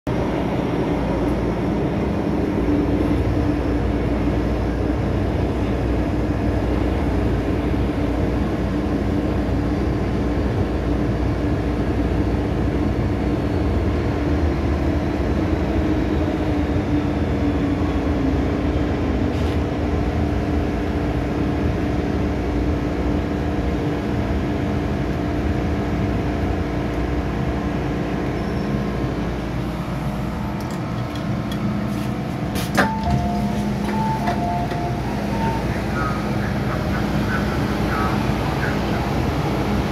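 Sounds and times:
constant hum: 0.1 - 39.9
train wheels rumbling on track: 0.1 - 39.9.

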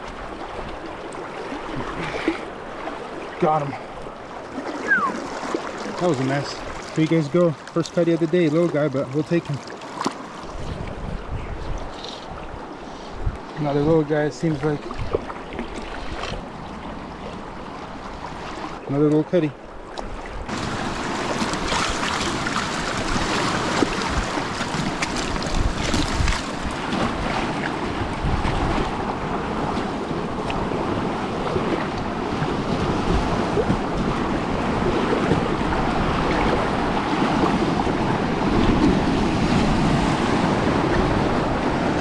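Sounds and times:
rushing whitewater: 0.0 - 10.6, 20.5 - 42.0.

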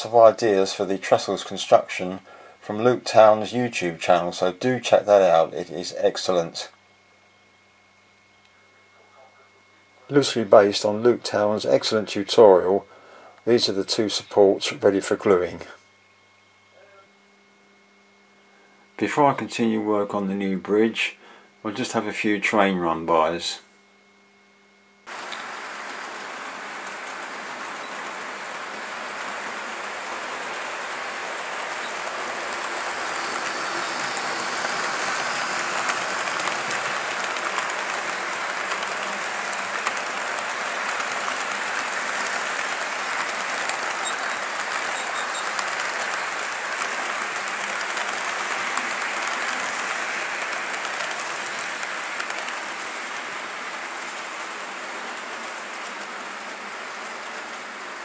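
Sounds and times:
model train wheels rattling: 30.1 - 58.0.

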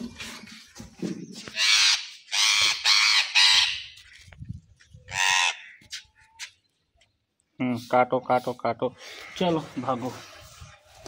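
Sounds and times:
parakeet squawking: 1.5 - 4.0, 5.1 - 5.8.

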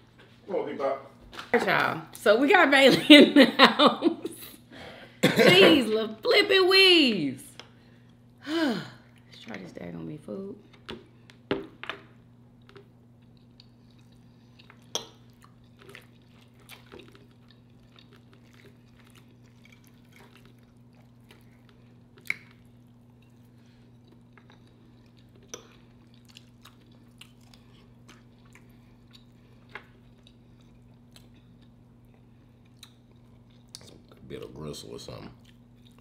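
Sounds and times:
steady low hum: 0.0 - 36.0
wet chewing sounds: 12.5 - 34.3, 35.3 - 36.0.

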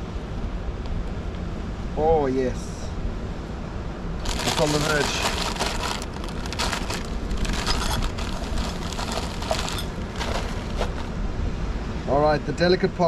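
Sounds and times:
low steady rumble: 0.0 - 12.7
crisp packet crinkling: 4.2 - 11.2.

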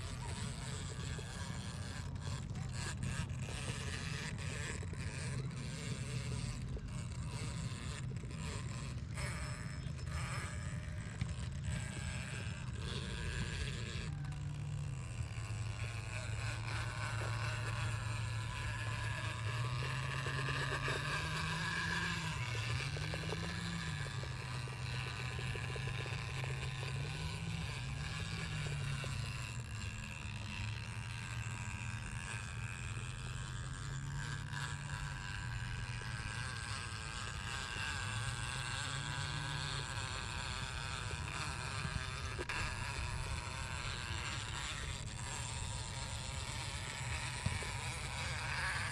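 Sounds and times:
rc car motor whining: 0.0 - 48.9.

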